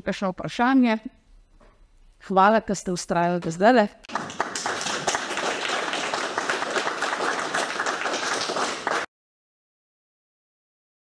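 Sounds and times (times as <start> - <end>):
audience applauding: 4.1 - 9.1.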